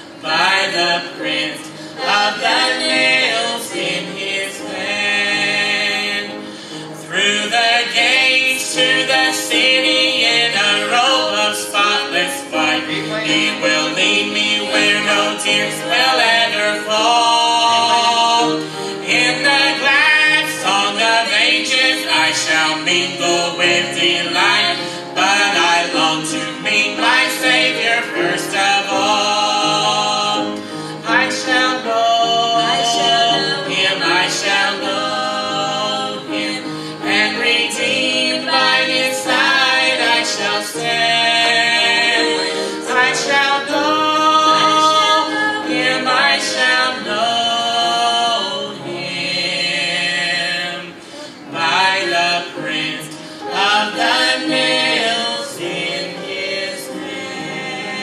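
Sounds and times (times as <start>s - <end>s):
man and woman singing duet: 0.0s - 58.0s.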